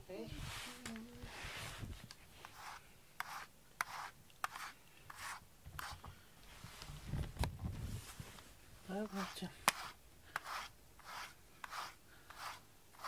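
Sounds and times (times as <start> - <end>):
fur rubbing against microphone: 0.2 - 2.8, 4.6 - 8.6.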